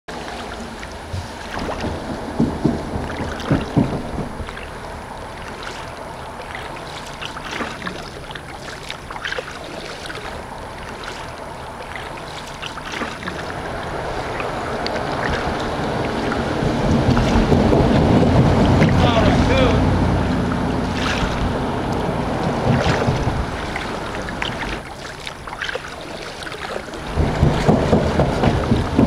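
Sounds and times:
low rushing: 0:00.1 - 0:25.6, 0:26.4 - 0:29.0
paddle splashing in water: 0:00.1 - 0:29.0
knocks: 0:01.1 - 0:04.8, 0:27.1 - 0:29.0.

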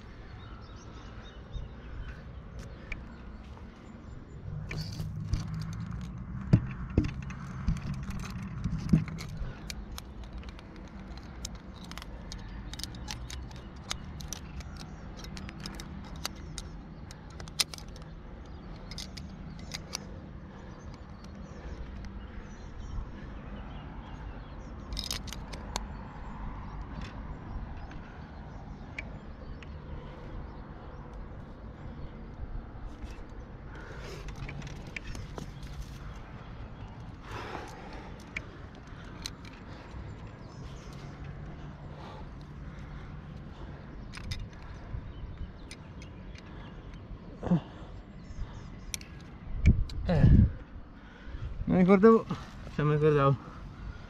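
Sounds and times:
climbing gear clinking: 0:01.5 - 0:23.3, 0:24.0 - 0:50.4
taps and scrapes on rock: 0:04.6 - 0:22.2, 0:32.8 - 0:47.0.

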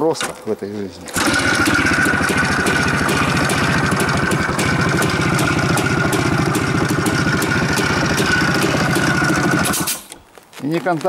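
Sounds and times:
motorcycle engine idling: 0:01.2 - 0:10.0.

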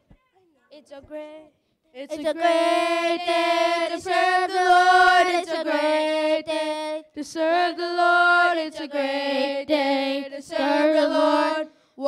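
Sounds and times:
children singing a hymn: 0:02.1 - 0:11.7.

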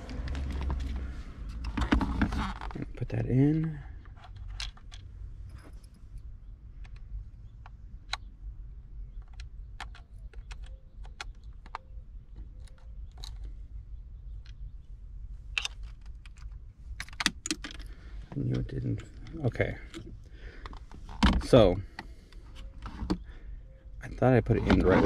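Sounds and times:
small plastic clicks and knocks: 0:06.8 - 0:08.3, 0:09.0 - 0:13.6
clicks and rattles: 0:15.5 - 0:23.2.

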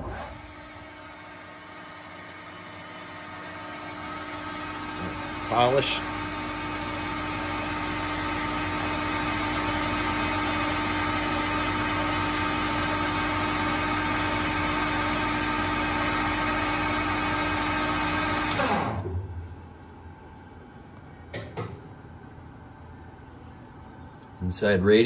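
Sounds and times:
lathe spindle humming: 0:00.4 - 0:19.0.

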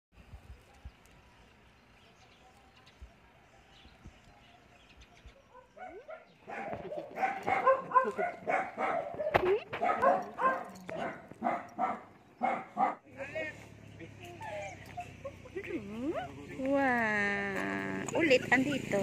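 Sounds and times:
dogs barking and yipping: 0:05.3 - 0:13.0, 0:14.2 - 0:16.6, 0:18.0 - 0:19.0.

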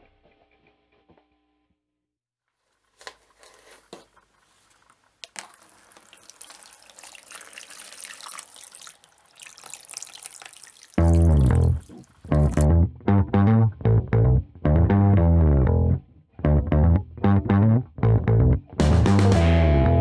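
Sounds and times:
water pouring and splashing: 0:04.5 - 0:12.7
loud music: 0:18.8 - 0:20.0.

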